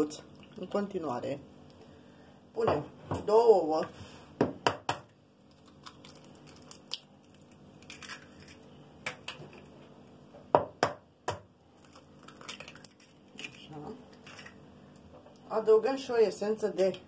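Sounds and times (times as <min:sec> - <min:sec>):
eggshell cracking: 0:05.4 - 0:09.7, 0:11.3 - 0:14.6.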